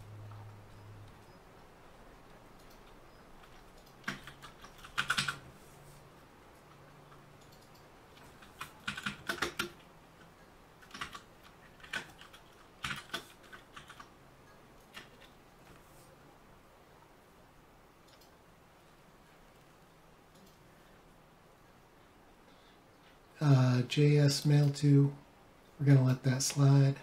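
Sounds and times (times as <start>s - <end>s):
computer keyboard typing: 2.6s - 5.5s, 7.0s - 14.1s, 14.9s - 15.4s.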